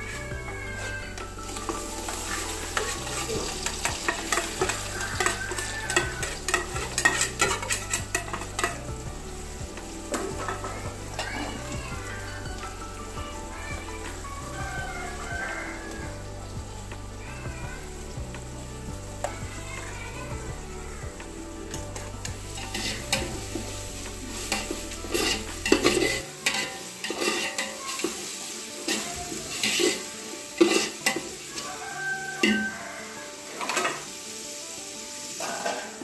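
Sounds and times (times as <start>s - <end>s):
onions sizzling in oil: 0.0s - 36.0s
ladle scraping and clanking on pot: 1.2s - 12.3s, 21.7s - 31.4s, 33.5s - 34.1s.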